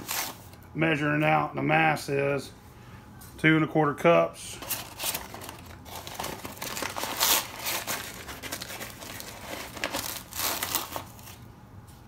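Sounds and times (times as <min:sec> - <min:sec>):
bag crinkling: 0:04.6 - 0:11.4
sugar rustling: 0:04.6 - 0:11.5.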